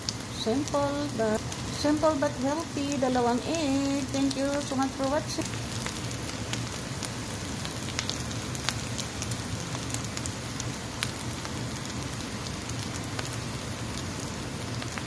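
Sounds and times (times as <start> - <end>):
food sizzling in oil: 0.0 - 15.0
sharp pops and crackles: 3.5 - 13.4.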